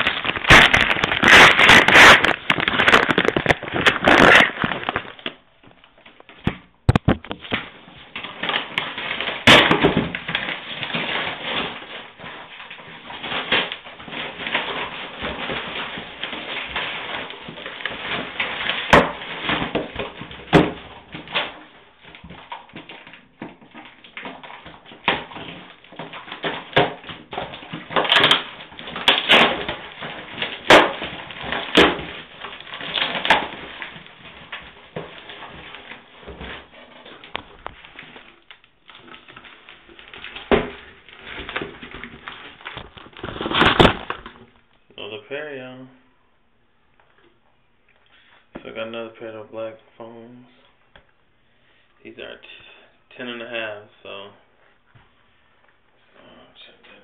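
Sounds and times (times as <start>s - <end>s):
cardboard box tearing: 0.0s - 5.3s, 39.1s - 44.4s.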